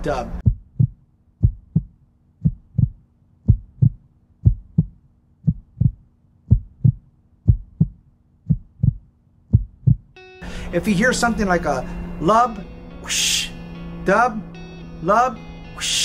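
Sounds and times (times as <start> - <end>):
heartbeat lub-dub: 0.4 - 10.2.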